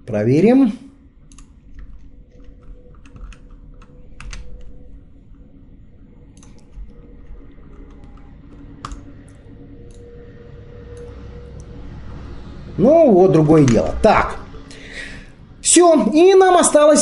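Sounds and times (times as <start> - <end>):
low steady hum: 0.0 - 17.0
computer mouse clicks: 1.3 - 4.7, 6.3 - 9.1
keyboard keys clicking: 1.3 - 4.8, 6.3 - 9.1.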